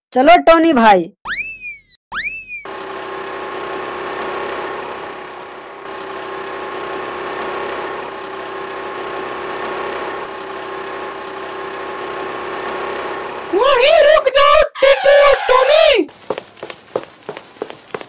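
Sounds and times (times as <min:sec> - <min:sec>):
small vehicle engine running: 0:02.5 - 0:13.6, 0:14.9 - 0:18.0.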